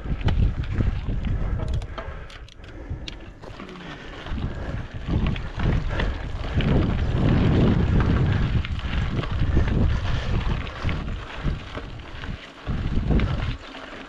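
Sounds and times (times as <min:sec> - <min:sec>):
wind buffeting the microphone: 0:00.0 - 0:13.8
bike clicks and rattles: 0:00.0 - 0:14.0.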